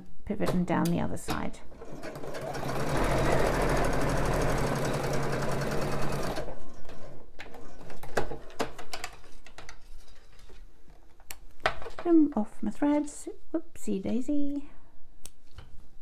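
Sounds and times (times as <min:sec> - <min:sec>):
sewing machine stitching: 0:01.7 - 0:07.2.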